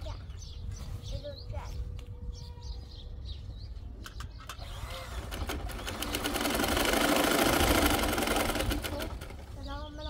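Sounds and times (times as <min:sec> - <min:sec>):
birds chirping faintly: 0:00.0 - 0:10.0
sewing machine stitching: 0:04.6 - 0:09.4.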